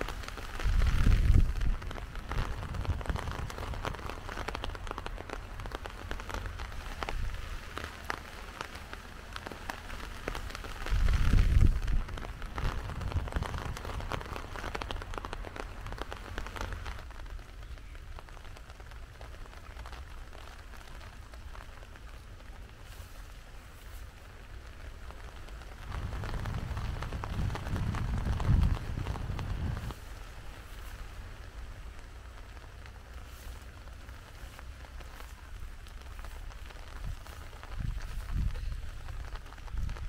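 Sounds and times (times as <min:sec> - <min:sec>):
drops ticking on surfaces: 0:00.0 - 0:10.9, 0:11.5 - 0:22.1
heavy rain falling: 0:00.0 - 0:40.0.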